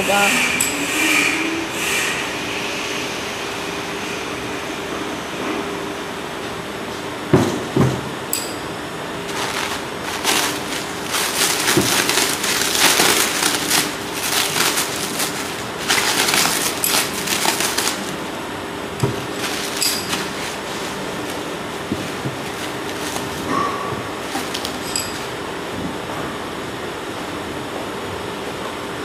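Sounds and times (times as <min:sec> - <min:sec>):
steady background hum: 0:00.0 - 0:29.0
plastic crinkling and rustling: 0:09.2 - 0:18.2, 0:19.0 - 0:25.3.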